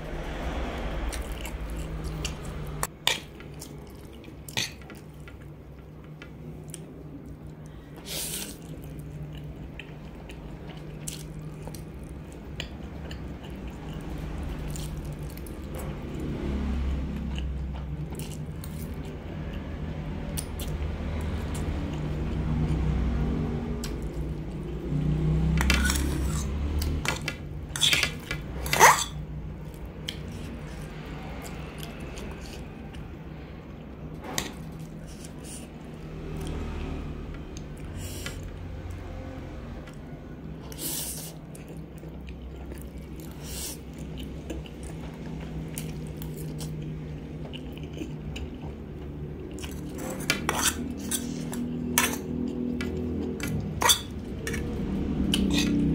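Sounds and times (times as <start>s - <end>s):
steady low hum: 0.0s - 55.9s
chewing and slurping noodles: 6.6s - 16.2s, 39.8s - 55.9s.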